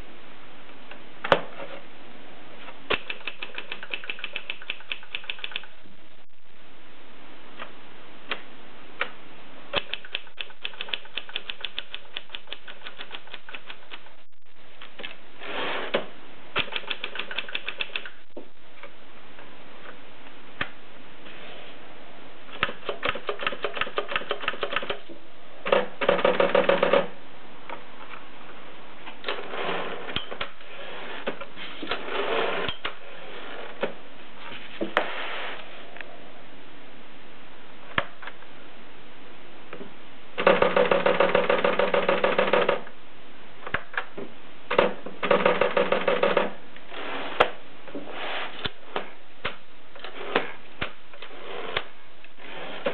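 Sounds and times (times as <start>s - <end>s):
typewriter keystrokes clacking: 2.9s - 5.7s, 9.8s - 14.1s, 16.6s - 18.2s.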